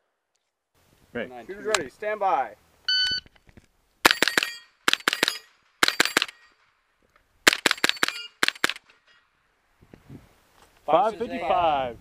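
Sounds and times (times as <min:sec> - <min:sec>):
rifle shots: 0:04.0 - 0:06.7, 0:07.4 - 0:08.9.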